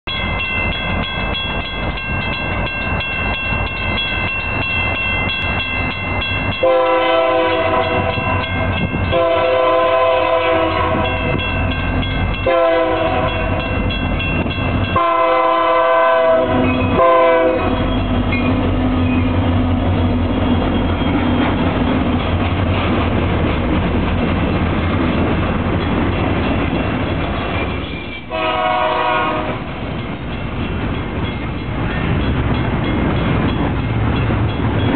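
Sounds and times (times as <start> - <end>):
train engine rumble: 0.0 - 34.9
locomotive horn blasts: 6.6 - 11.4, 12.4 - 13.7, 14.9 - 17.9, 28.3 - 29.7
wheels clicking on rails: 17.7 - 28.4, 29.4 - 34.9.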